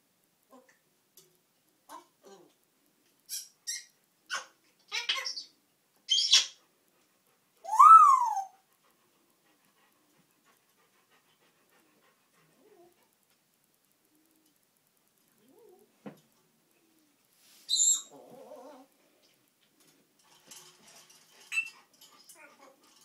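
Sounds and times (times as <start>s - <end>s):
parrot call rising and falling: 7.7s - 8.6s.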